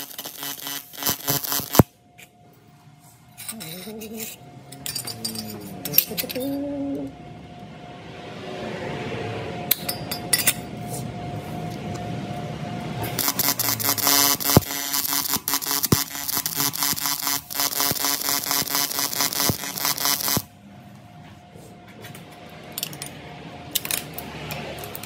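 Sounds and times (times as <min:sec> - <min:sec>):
buzzing power tool: 0:00.0 - 0:01.9, 0:13.0 - 0:20.5.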